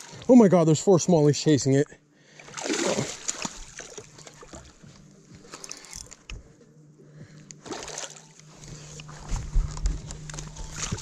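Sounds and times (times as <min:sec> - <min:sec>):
low steady hum: 0:00.0 - 0:11.0
fish splashing at surface: 0:02.5 - 0:04.1.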